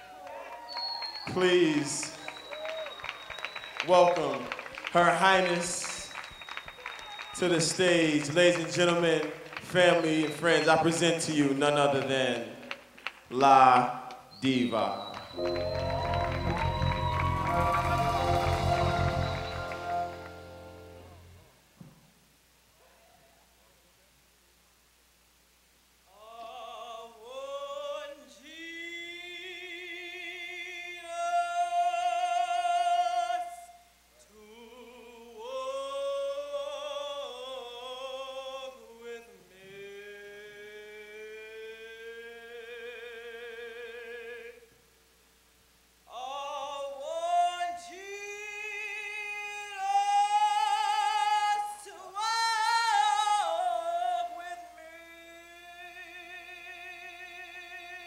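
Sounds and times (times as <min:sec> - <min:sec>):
woman singing operatically: 0:46.1 - 0:58.0.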